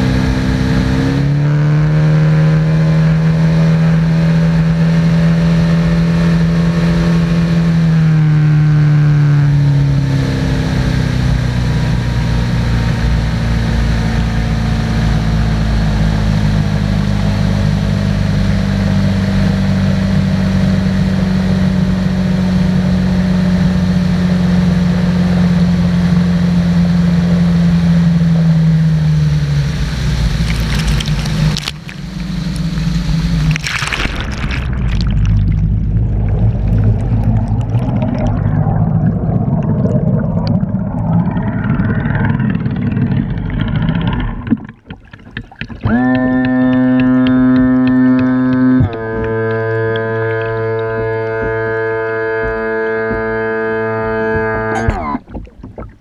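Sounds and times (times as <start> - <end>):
outboard motor running: 0.0 - 56.0
rushing spray: 29.6 - 38.1
muffled underwater propeller gurgling: 29.6 - 56.0.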